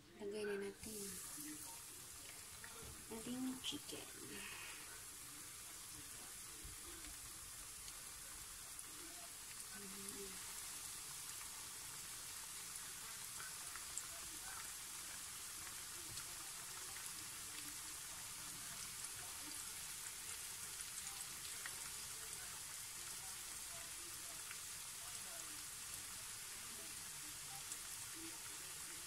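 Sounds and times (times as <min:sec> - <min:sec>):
oil sizzling with crackles: 0:00.0 - 0:29.0.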